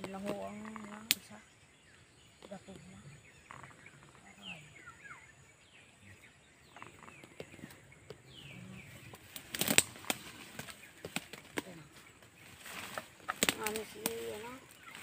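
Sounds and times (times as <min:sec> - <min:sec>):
plants rustling and snapping: 0:00.0 - 0:01.3, 0:09.1 - 0:15.0
faint bird chirps: 0:00.0 - 0:15.0.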